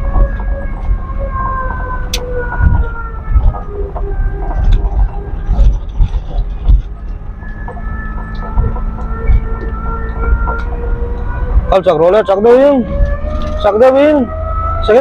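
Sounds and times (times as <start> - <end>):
car mechanical whine: 0.0 - 15.0
low rumbling: 0.0 - 15.0
irregular thumps: 2.3 - 11.7.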